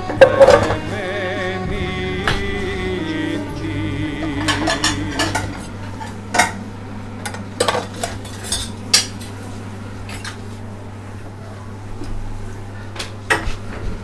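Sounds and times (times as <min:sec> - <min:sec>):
utensil scraping a cooking pot: 0:04.2 - 0:06.6.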